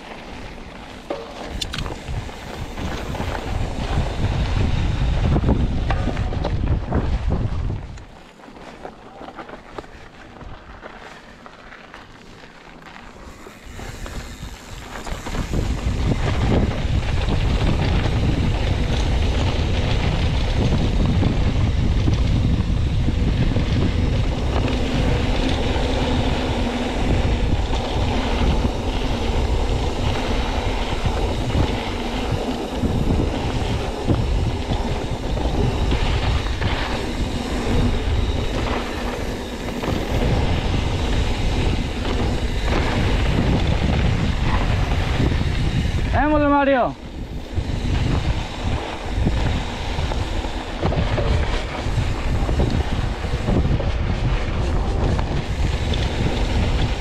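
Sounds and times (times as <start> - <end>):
bike rattling and clicking: 0.0 - 57.0
bike tyres rumbling on dirt: 0.0 - 57.0
wind on microphone: 0.9 - 8.2, 13.2 - 57.0.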